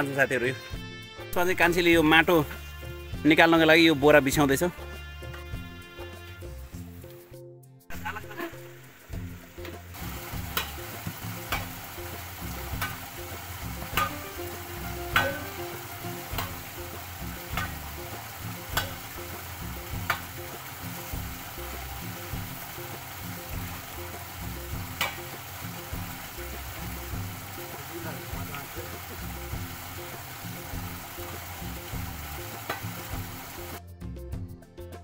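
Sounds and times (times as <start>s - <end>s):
background music: 0.0s - 35.0s
steady hiss: 7.9s - 33.8s
hand tool striking stone: 10.5s - 10.8s, 11.5s - 11.7s, 12.7s - 13.0s, 13.9s - 14.2s, 15.1s - 15.5s, 16.3s - 16.6s, 17.5s - 17.9s, 18.7s - 19.0s, 20.0s - 20.3s, 24.9s - 25.2s, 32.6s - 32.9s.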